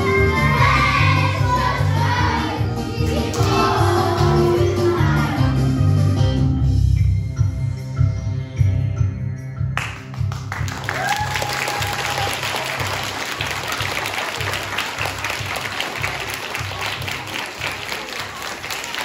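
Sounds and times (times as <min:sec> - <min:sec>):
audience applauding: 0:09.8 - 0:19.0
long high cheer: 0:10.7 - 0:13.2.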